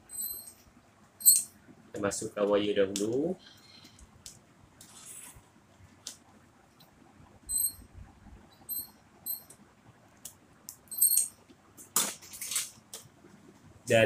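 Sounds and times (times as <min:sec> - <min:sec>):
pliers squeaking: 0:00.0 - 0:00.6, 0:01.2 - 0:01.5, 0:07.5 - 0:07.8, 0:08.6 - 0:09.5, 0:10.9 - 0:11.3.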